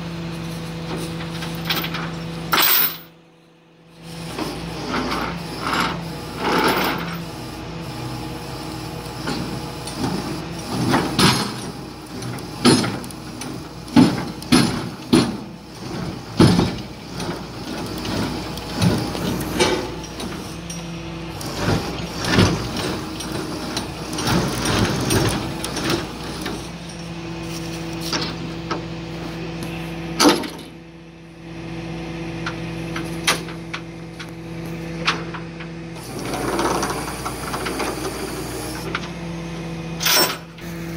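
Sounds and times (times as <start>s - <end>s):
truck engine and winch running: 0.0s - 40.9s
steel clanks and bangs: 9.2s - 27.2s, 30.2s - 30.8s.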